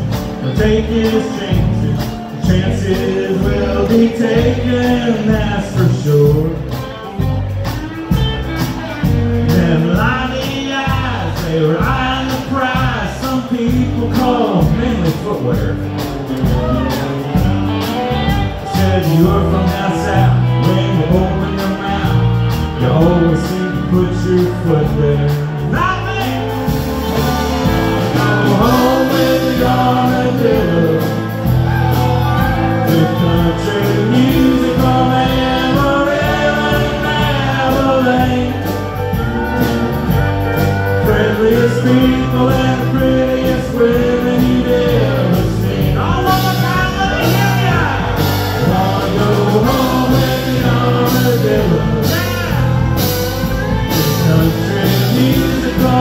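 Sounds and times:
person singing: 0.0s - 39.8s, 40.5s - 56.0s
country band playing: 0.0s - 56.0s.

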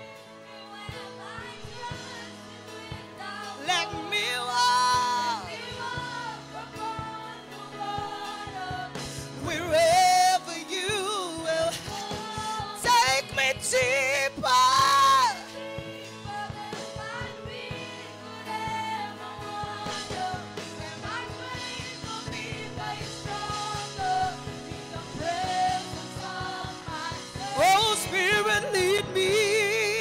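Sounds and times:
steady drum beat: 0.8s - 30.0s
person singing with vibrato: 3.3s - 16.2s, 19.8s - 30.0s.

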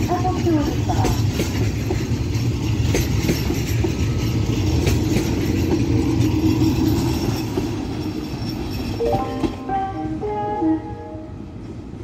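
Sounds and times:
wheels clacking over rail joints: 0.0s - 9.0s
train wheels rumbling on rails: 0.0s - 10.3s.

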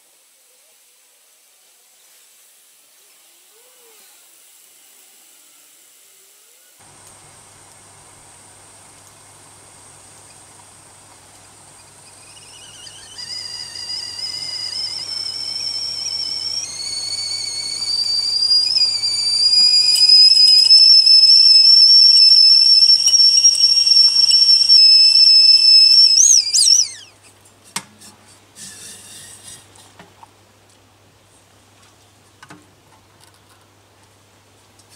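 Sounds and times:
whistling kettle: 11.4s - 27.2s.

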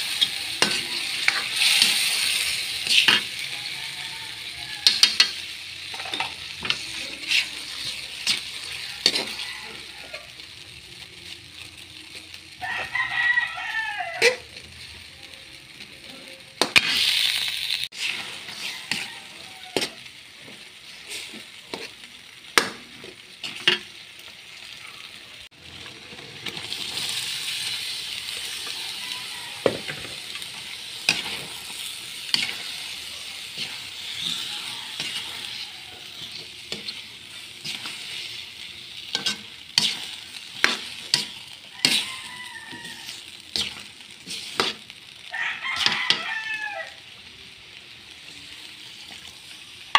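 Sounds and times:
metal spatula scraping a pan: 0.0s - 10.7s, 14.0s - 15.1s, 16.1s - 22.1s, 22.9s - 24.0s, 26.1s - 45.0s, 45.6s - 46.5s
food sizzling in a wok: 0.0s - 49.9s.

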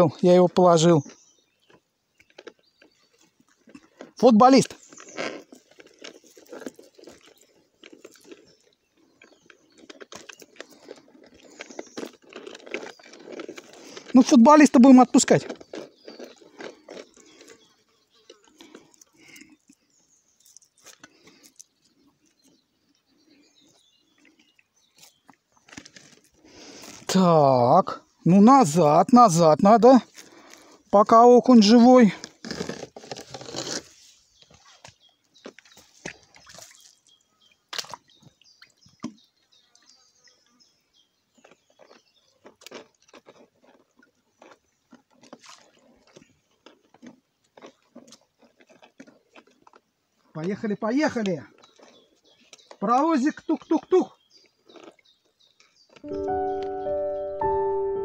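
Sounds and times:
water splashes and drips: 36.0s - 37.1s, 37.7s - 39.1s.

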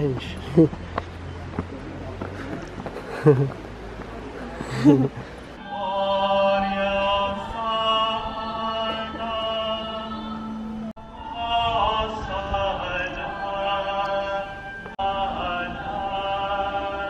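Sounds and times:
chanted church singing: 5.4s - 17.0s.

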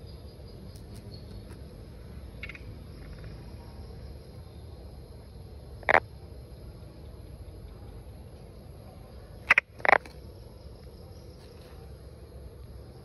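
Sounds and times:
insect trill: 0.0s - 13.0s
frog calling: 2.2s - 3.5s, 5.7s - 6.2s, 9.4s - 10.3s.

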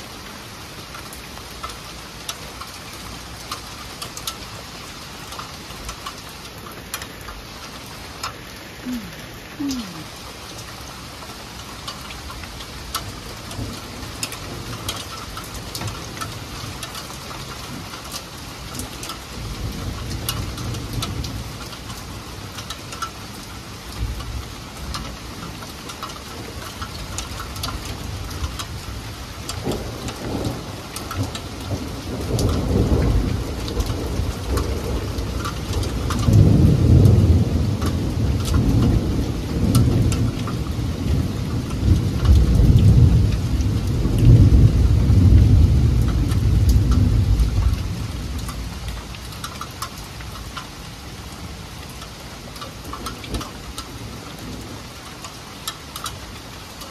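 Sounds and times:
heavy rain falling: 0.0s - 56.9s
raindrops ticking on hard surfaces: 0.0s - 56.9s
low thunder rumble: 29.6s - 49.1s.

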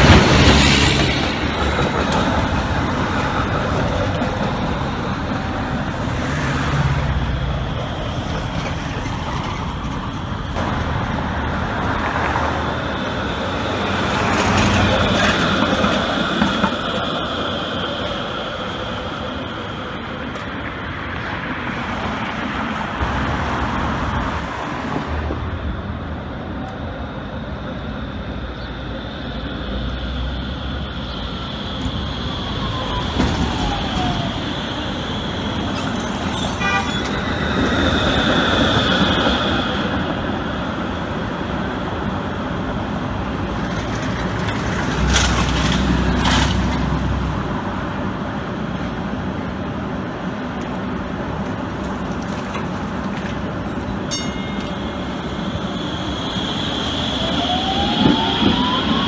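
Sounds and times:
city traffic: 0.0s - 59.0s
trolley car running on tracks: 0.0s - 59.0s
high squeal: 27.2s - 40.8s, 53.8s - 59.0s.

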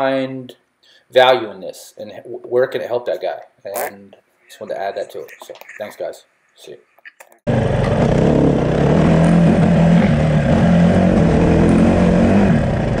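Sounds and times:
dirt bike engine running: 7.5s - 13.0s.

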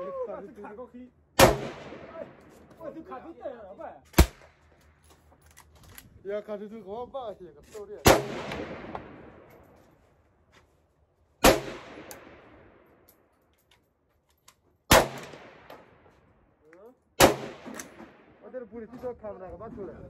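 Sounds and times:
gunshots with echo: 1.4s - 2.4s, 8.0s - 9.5s, 11.4s - 12.7s, 17.2s - 18.4s.

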